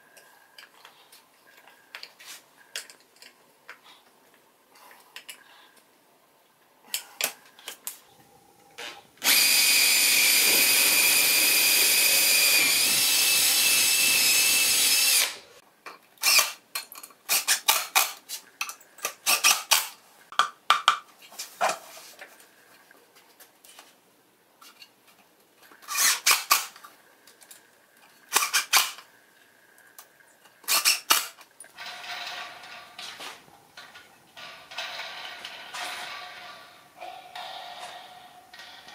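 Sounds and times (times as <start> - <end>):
power drill running: 9.2 - 15.6.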